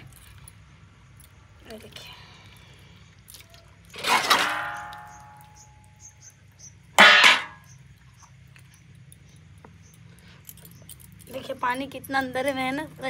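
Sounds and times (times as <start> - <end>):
steel plate clanging: 4.0 - 5.6, 7.0 - 7.7.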